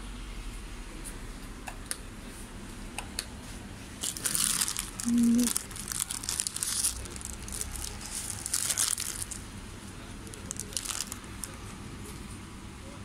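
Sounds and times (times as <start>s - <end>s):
plastic packets crinkling: 4.0s - 9.5s, 10.2s - 11.6s.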